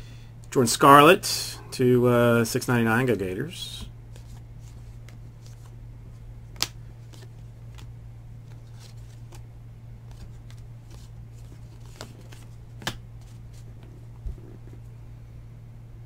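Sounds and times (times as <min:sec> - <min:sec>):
low hum: 0:00.0 - 0:16.0
cards rustling in hands: 0:04.1 - 0:14.8.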